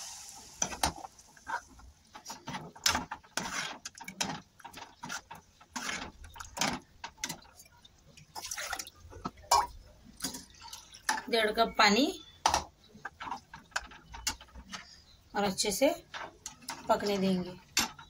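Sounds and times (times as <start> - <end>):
metal ladle scraping a pot: 2.9 - 7.4.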